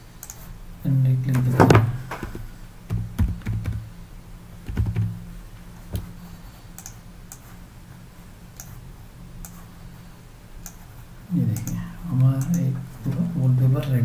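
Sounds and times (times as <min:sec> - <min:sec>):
low steady hum: 0:00.0 - 0:14.0
keyboard typing: 0:02.2 - 0:03.9, 0:04.6 - 0:05.2.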